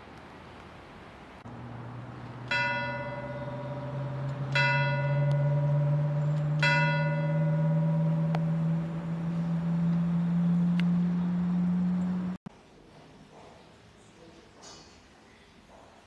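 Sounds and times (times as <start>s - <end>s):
church bell tolling: 1.5s - 12.4s
low steady drone: 1.5s - 12.4s.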